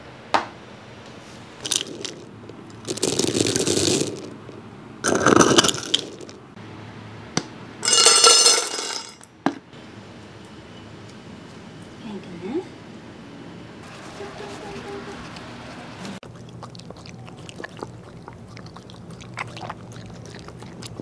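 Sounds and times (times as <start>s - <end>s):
dog kibble rattling: 1.6s - 6.4s, 7.8s - 9.2s.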